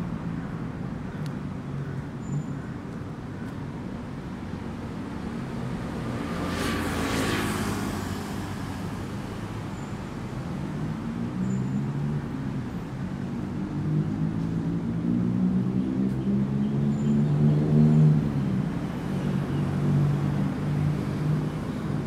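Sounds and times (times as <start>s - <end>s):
road traffic passing: 0.0s - 22.0s.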